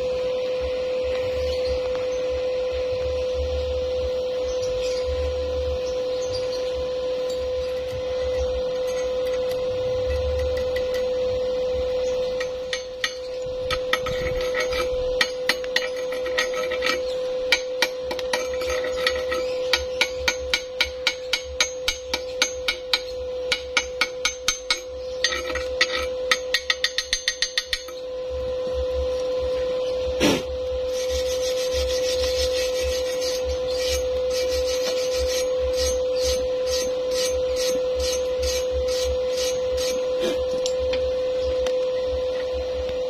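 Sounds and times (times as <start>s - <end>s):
chipping hammer tapping steel: 12.2s - 28.0s.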